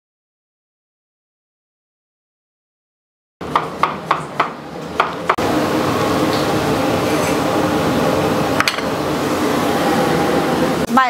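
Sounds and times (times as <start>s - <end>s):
range hood fan whooshing: 3.4s - 11.0s.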